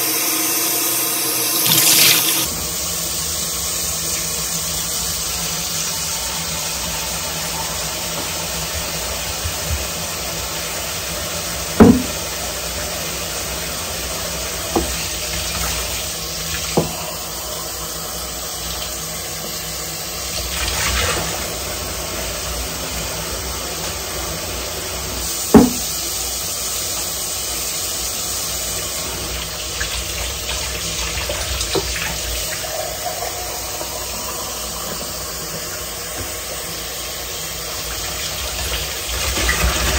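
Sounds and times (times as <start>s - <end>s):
tap running into a sink: 0.0s - 2.5s, 11.7s - 12.4s, 14.5s - 17.2s, 25.4s - 26.1s, 29.2s - 36.7s
dishes knocking and clinking: 25.6s - 25.9s.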